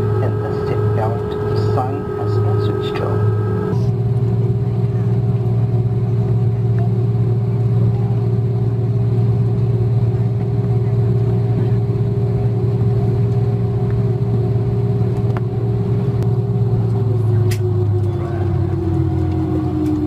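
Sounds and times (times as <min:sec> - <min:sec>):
steady tones: 0:00.0 - 0:03.9
jet engines idling: 0:00.0 - 0:20.0.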